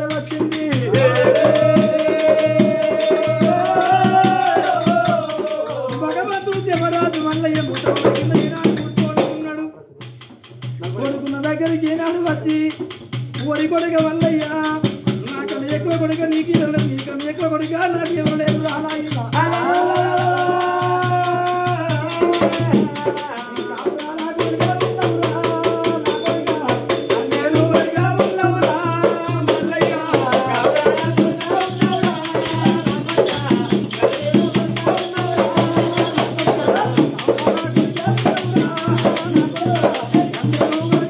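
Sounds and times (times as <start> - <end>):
voices singing: 0.0 - 9.4, 18.8 - 41.0
barrel drum beaten fast: 0.0 - 41.0
jingling metal percussion: 0.0 - 41.0.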